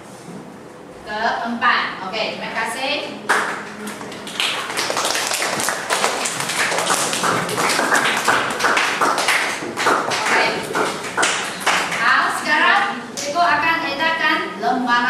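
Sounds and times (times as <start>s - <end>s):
rapid irregular tapping: 3.3s - 12.4s.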